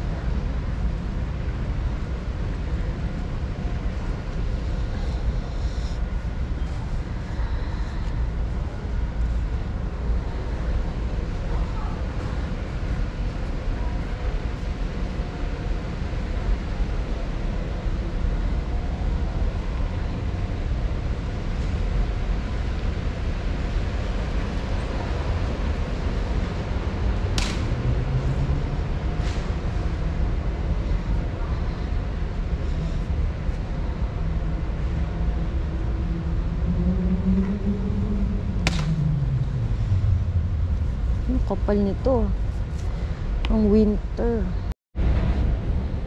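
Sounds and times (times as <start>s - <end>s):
low rumble of store ambience: 0.0s - 46.0s.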